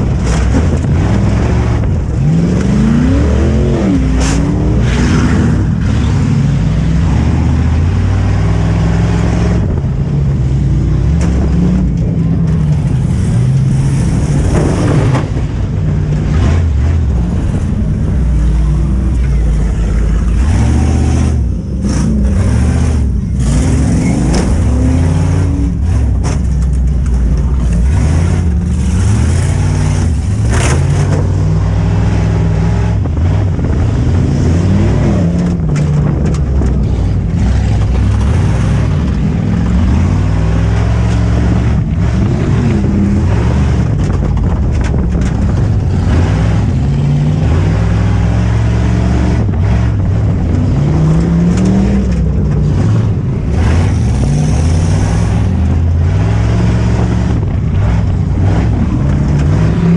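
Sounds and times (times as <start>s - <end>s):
truck engine revving: 0.0s - 59.9s
knocks and rattles: 10.8s - 31.8s, 33.0s - 48.1s.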